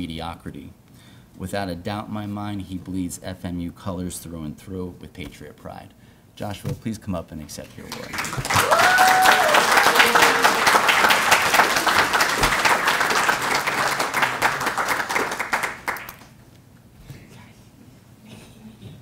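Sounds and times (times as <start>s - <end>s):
audience applauding: 7.8s - 16.4s.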